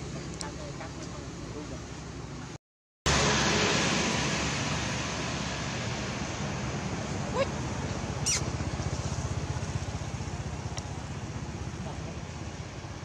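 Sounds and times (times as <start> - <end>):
short rising chirps: 8.2 - 8.5.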